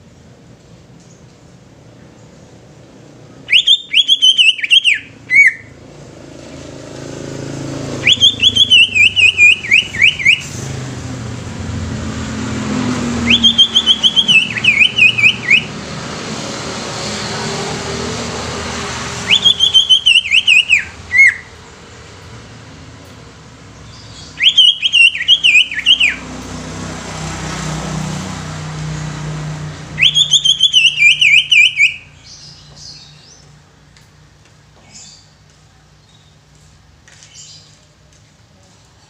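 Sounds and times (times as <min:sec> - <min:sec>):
bird singing whistled phrases: 0:03.5 - 0:05.7, 0:08.0 - 0:10.6, 0:13.2 - 0:15.7, 0:19.2 - 0:21.5, 0:23.9 - 0:26.2, 0:30.0 - 0:33.4.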